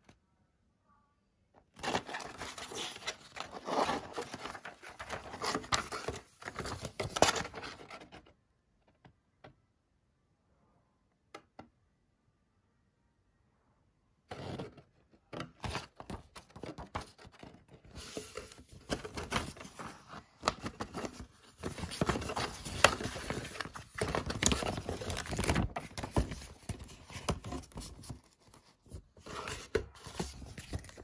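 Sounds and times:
paper pages rustling: 1.8 - 8.2, 15.6 - 31.0.

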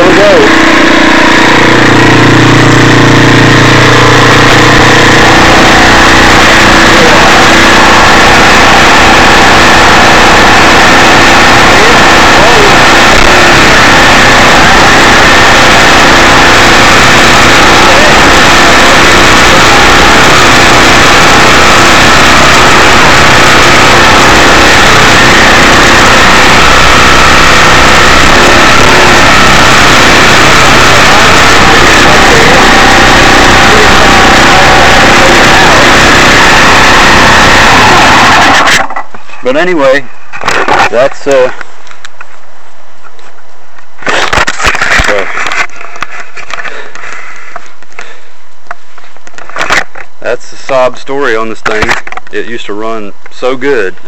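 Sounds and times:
motorcycle engine racing idle: 0.0 - 39.0
motorcycle engine high idle: 0.1 - 11.2.

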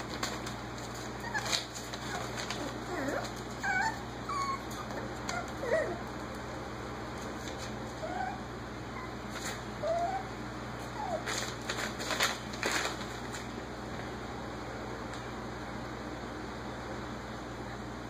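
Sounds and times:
puppies yipping: 1.0 - 6.1, 9.8 - 11.3.

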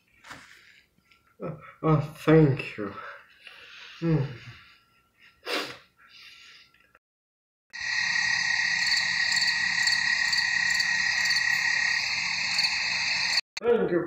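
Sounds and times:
chorus of frogs calling: 7.8 - 13.4.

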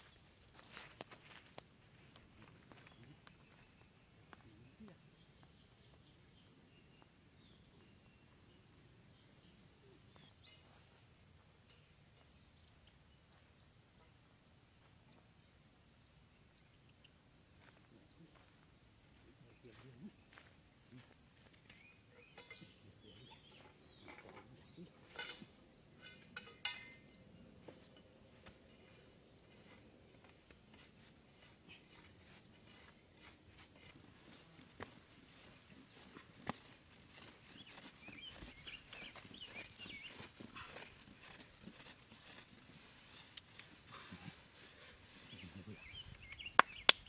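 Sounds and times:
faint chirps: 0.0 - 47.0
thin steady high tone: 0.6 - 35.6.

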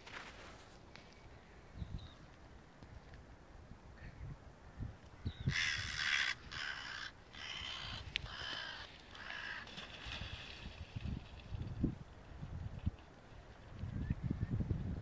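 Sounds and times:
crow cawing: 5.5 - 9.7.

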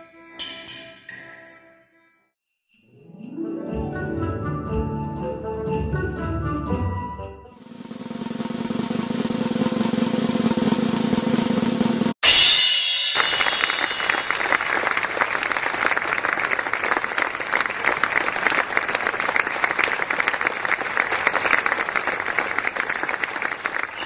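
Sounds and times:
crowd applause: 13.2 - 24.0.

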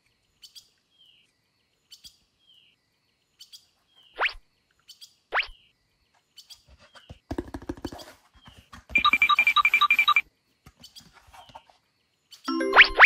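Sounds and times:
rapid ringing beep: 9.0 - 10.2.

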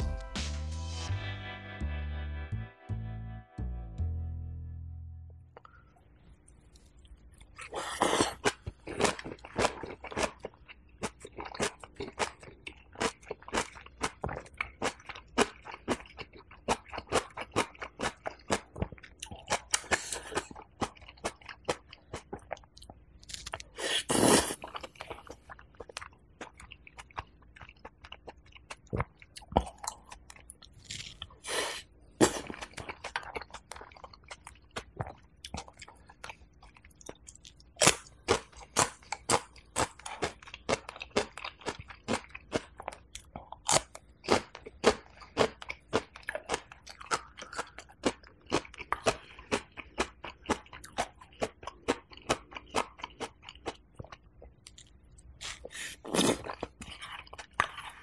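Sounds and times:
person chewing crunchy food: 5.6 - 58.0.

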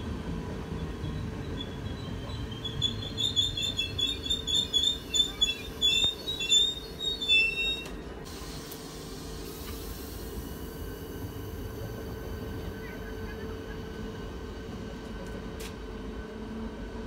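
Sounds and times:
train running gear rumbling: 0.0 - 17.0
train wheels squealing: 0.7 - 8.1.

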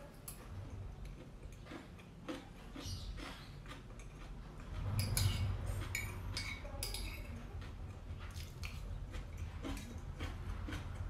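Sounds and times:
metal spoon scraping a plate: 4.8 - 7.3.

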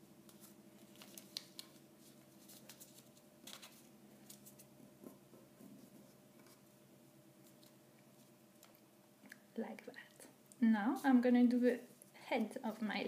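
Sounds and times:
light paper crackles: 0.3 - 6.6
paper rustling and creasing: 0.3 - 6.6.

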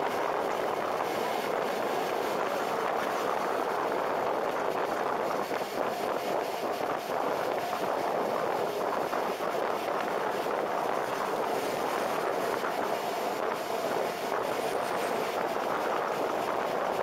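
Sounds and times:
wind rushing on microphone: 0.0 - 17.0.

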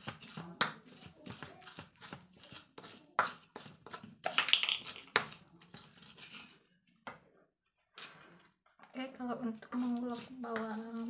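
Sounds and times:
pestle pounding in a mortar: 0.0 - 6.1.

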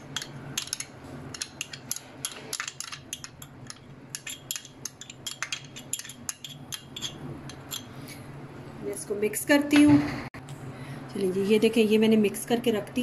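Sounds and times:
metal spoon scraping glass: 0.1 - 7.9.

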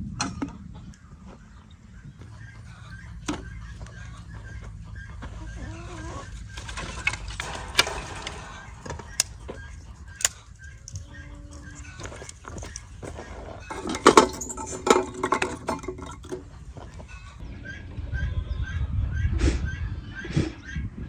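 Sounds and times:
dishes and utensils clinking: 13.6 - 16.6.

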